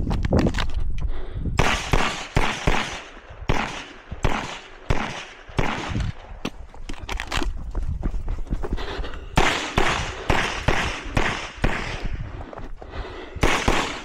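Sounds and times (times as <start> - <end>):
pistol shots with echo: 1.6 - 6.3, 9.4 - 12.1, 13.4 - 14.0.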